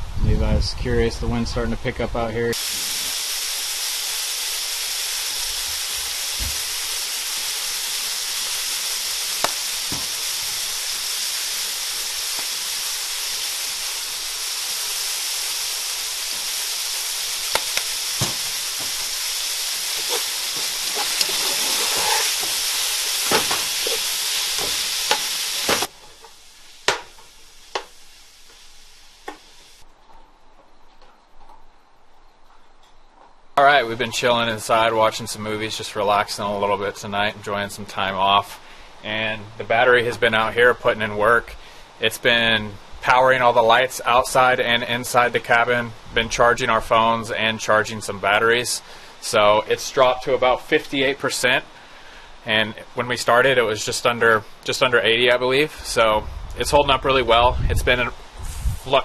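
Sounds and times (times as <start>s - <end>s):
food sizzling in frying pan: 2.5s - 29.8s.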